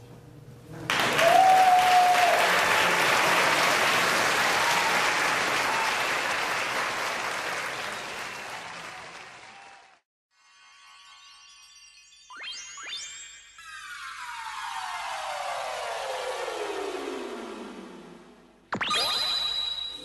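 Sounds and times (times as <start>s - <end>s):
audience applauding: 0.9s - 10.0s.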